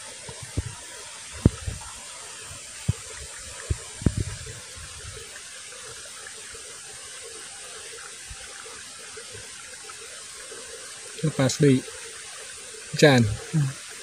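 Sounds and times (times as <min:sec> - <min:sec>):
steady outdoor hiss: 0:00.0 - 0:14.0
dull low thumps: 0:01.4 - 0:01.9, 0:02.8 - 0:05.2.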